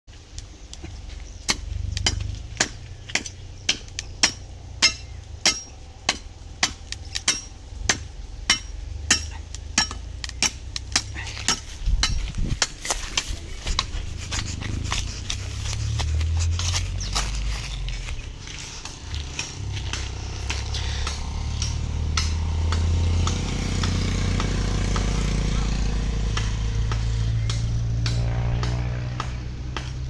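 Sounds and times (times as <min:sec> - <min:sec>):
footsteps through dry grass: 0:11.2 - 0:22.0.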